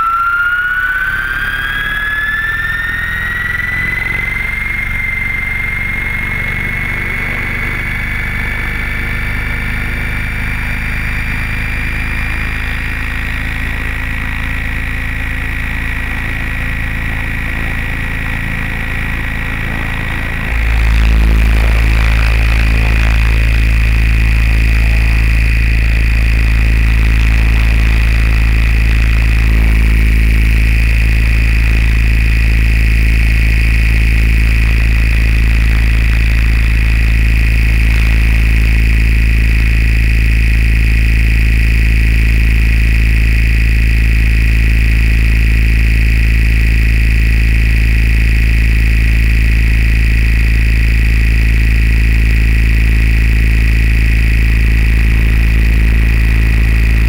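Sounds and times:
drone motors whining: 0.0 - 39.4, 52.6 - 57.0.

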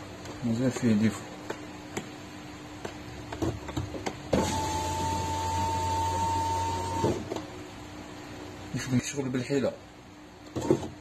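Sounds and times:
electric window motor whining: 4.3 - 7.4.

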